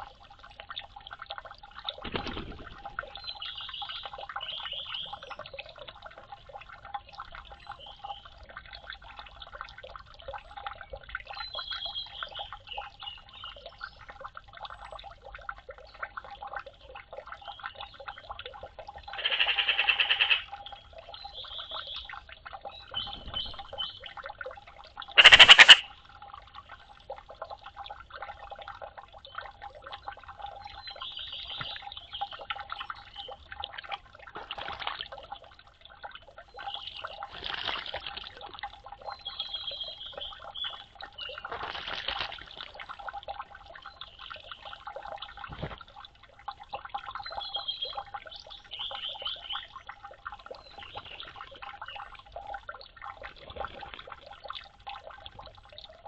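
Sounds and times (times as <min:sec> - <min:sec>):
water trickling and dripping: 0:00.0 - 0:56.0
magpies calling: 0:19.1 - 0:20.5, 0:25.2 - 0:25.9
harsh rattling call: 0:19.2 - 0:20.4, 0:25.2 - 0:25.9
small high chirps: 0:25.2 - 0:25.9.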